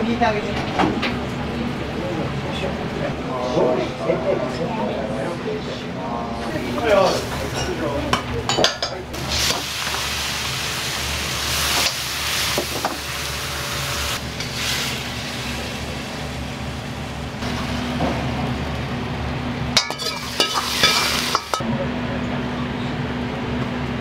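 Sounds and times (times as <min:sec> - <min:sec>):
kitchen fan humming: 0:00.0 - 0:24.0
food sizzling in a hot wok: 0:06.7 - 0:07.7, 0:09.2 - 0:18.8, 0:19.8 - 0:21.6
metal ladle clinking: 0:19.8 - 0:21.6.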